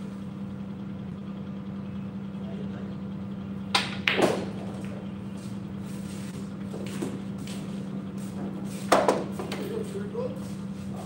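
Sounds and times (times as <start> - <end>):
cue striking ball: 3.7 - 5.0, 8.9 - 9.6
pool balls clacking: 3.7 - 5.0, 8.4 - 9.7.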